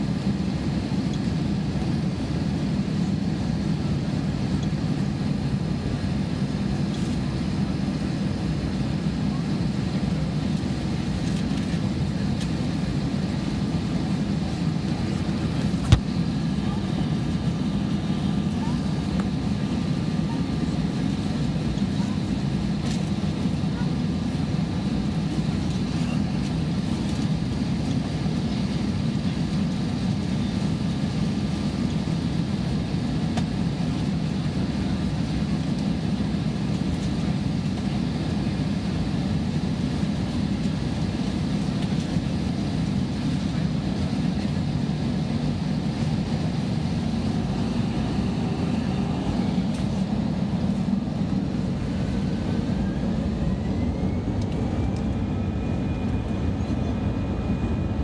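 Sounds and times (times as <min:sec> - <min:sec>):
jet engines rumbling in cabin: 0:00.0 - 0:58.0
faint rising whine: 0:46.9 - 0:58.0.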